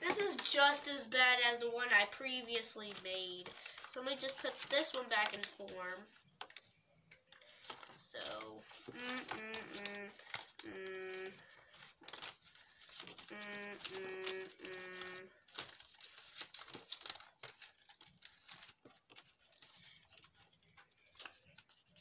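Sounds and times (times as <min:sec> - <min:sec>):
paper crinkling and rustling: 0:00.0 - 0:22.0
person singing held notes: 0:08.7 - 0:11.5, 0:13.2 - 0:15.3.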